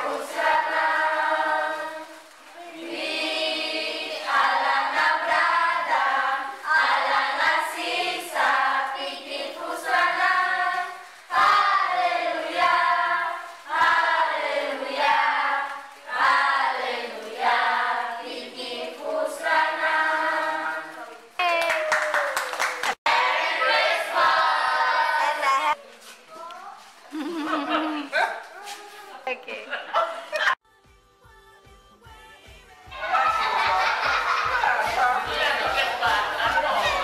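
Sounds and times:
children singing: 0:00.0 - 0:21.3, 0:23.1 - 0:25.4, 0:32.9 - 0:37.0.

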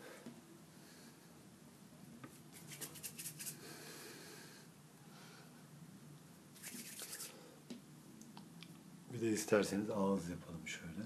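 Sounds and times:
soft rustle: 0:02.1 - 0:03.6, 0:06.5 - 0:07.4.

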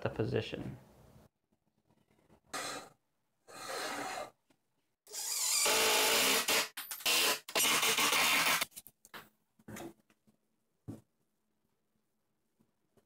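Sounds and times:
impact driver driving screws: 0:05.1 - 0:08.6.

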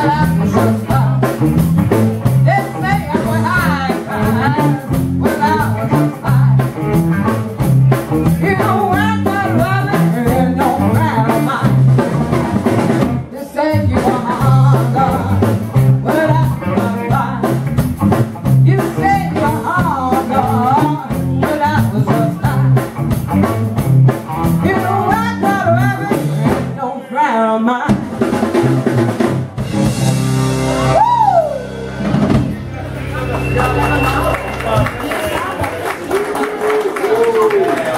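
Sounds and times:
woman singing lead: 0:00.0 - 0:01.4, 0:02.4 - 0:06.7, 0:08.3 - 0:11.8, 0:13.3 - 0:17.7, 0:18.6 - 0:23.0, 0:24.6 - 0:28.1
drum kit steady beat: 0:00.0 - 0:13.3, 0:13.9 - 0:26.8, 0:27.9 - 0:35.9
rock band playing: 0:00.0 - 0:26.8, 0:27.9 - 0:37.9.

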